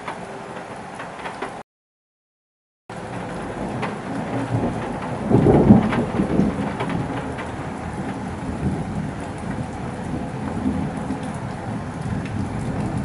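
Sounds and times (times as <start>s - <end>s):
raindrops tapping: 0.0s - 1.6s, 2.9s - 13.0s
steady rain: 0.0s - 1.6s, 2.9s - 13.0s
thunder rumbling: 2.9s - 13.0s.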